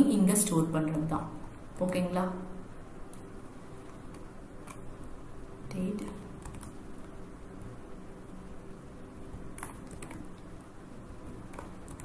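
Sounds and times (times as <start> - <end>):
steady low hum: 0.0 - 12.0
computer keyboard and mouse clicks: 3.1 - 4.8, 6.0 - 6.8, 9.5 - 10.5, 11.4 - 12.0.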